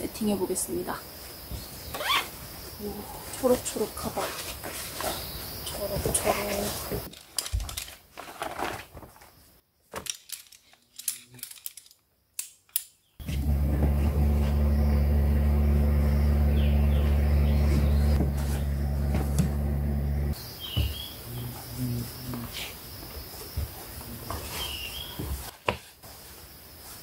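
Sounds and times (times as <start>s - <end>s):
truck engine drone: 13.2s - 20.4s.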